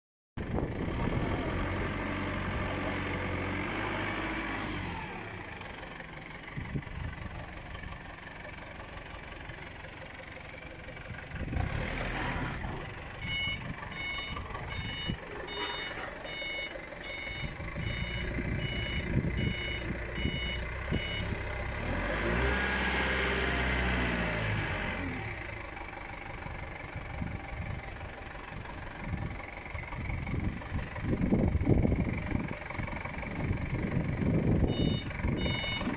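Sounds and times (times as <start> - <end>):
forklift engine revving: 0.4 - 35.9
reversing alarm beeping: 13.2 - 21.5, 34.7 - 35.9.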